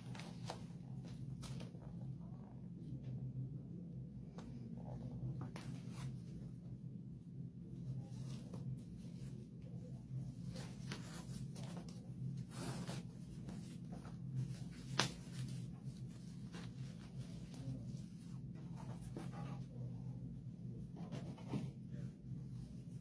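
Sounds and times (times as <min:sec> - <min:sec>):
steady low hum: 0:00.0 - 0:23.0
hands rustling fabric and paper: 0:07.8 - 0:19.8.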